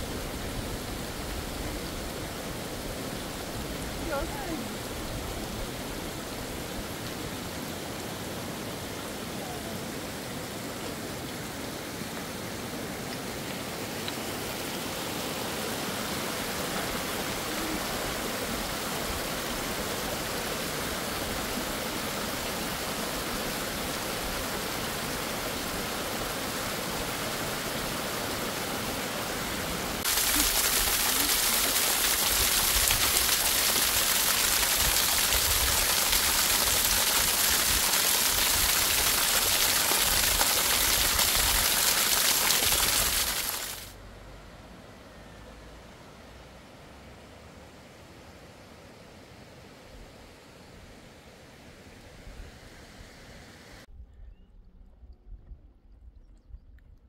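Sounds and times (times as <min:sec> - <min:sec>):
stream splashing over rocks: 0:00.0 - 0:44.0.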